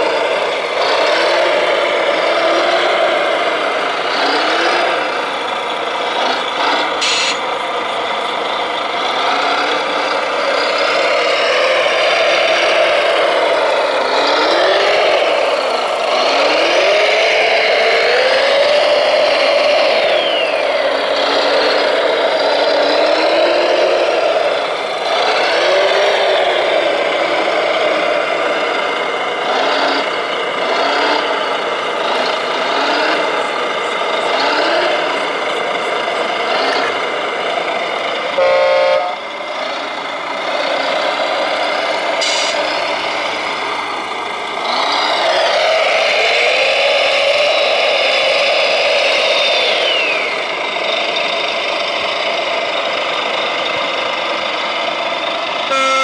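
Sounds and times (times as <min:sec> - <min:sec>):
model loader motors whining: 0:00.0 - 0:56.0
short horn-like beep: 0:07.0 - 0:07.4, 0:38.4 - 0:39.2, 0:55.7 - 0:56.0.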